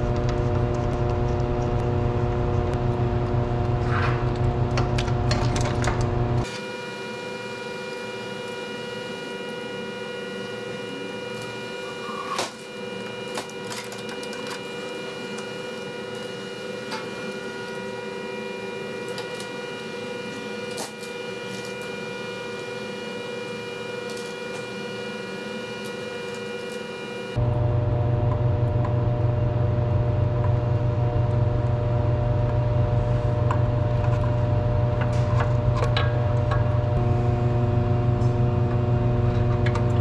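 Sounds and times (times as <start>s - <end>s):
mechanical hum: 0.0s - 40.0s.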